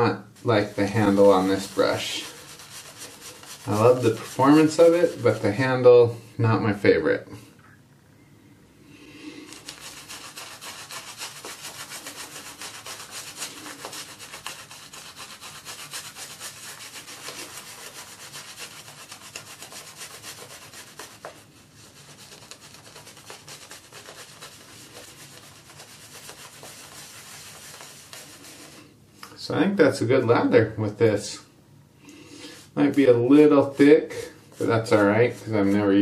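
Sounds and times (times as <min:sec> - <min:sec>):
shaving brush scrubbing lather: 0:00.0 - 0:05.8, 0:09.4 - 0:28.8, 0:32.6 - 0:36.0.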